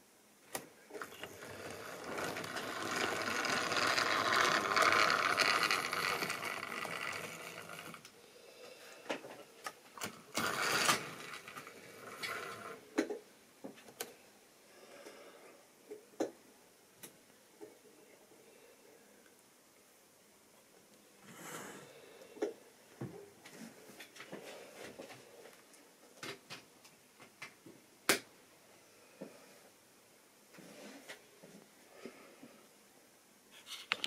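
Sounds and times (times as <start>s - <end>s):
wheels clicking over rail joints: 1.0s - 8.0s, 10.3s - 12.8s
model train motor whirring: 1.0s - 8.1s, 10.0s - 12.8s.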